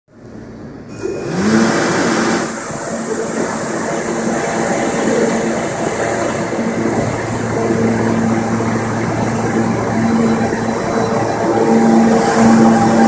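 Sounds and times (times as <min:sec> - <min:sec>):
subway train equipment hum: 0:00.1 - 0:13.0
loud rushing noise: 0:01.1 - 0:13.0.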